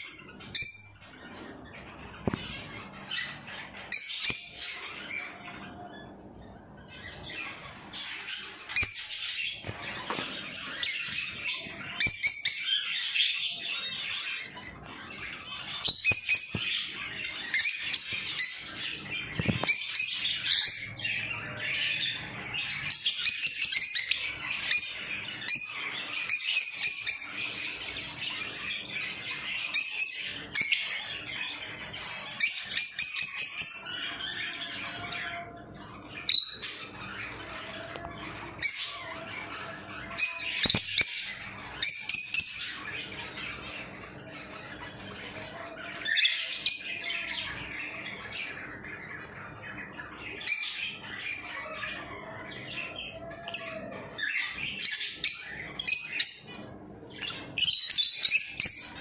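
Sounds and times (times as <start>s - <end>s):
lovebirds chirping and squawking: 0.0s - 59.0s.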